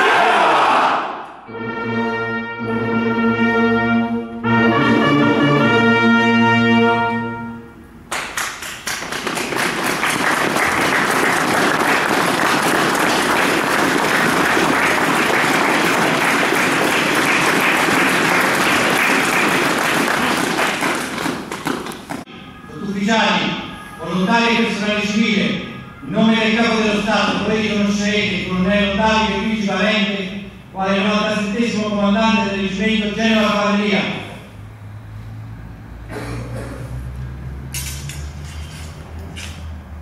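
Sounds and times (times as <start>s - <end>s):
brass fanfare: 0.0s - 8.0s, 22.3s - 27.4s
crowd applause: 8.1s - 22.2s.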